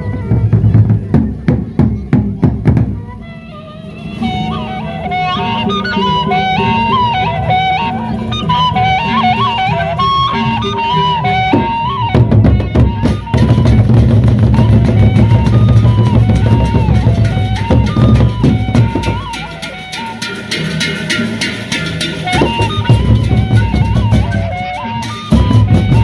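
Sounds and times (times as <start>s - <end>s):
wind instrument melody: 0.0s - 2.1s, 2.7s - 26.0s
barrel drums beating: 0.0s - 3.1s, 9.7s - 26.0s.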